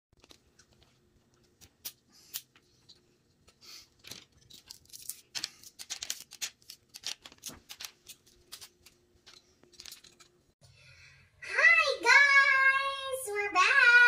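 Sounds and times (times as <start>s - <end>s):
plastic parts clicking and rattling: 4.0s - 10.4s.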